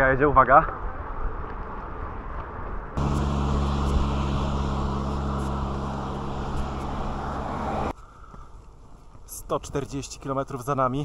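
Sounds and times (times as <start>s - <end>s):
loud mechanical drone: 3.0s - 7.9s
rushing noise: 3.0s - 7.9s.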